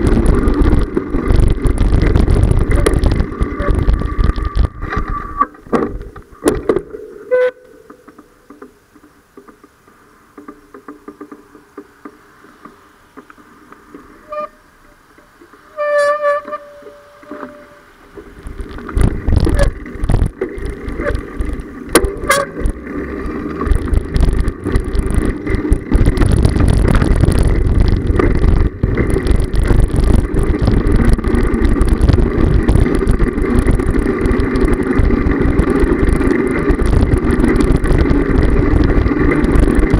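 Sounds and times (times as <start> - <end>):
wind rush on microphone: 0.0 - 6.0, 18.3 - 39.9
quiet street sound: 0.0 - 39.9
road rumble: 0.0 - 39.9
horn toot: 7.3 - 7.8, 15.7 - 17.9, 22.2 - 22.6.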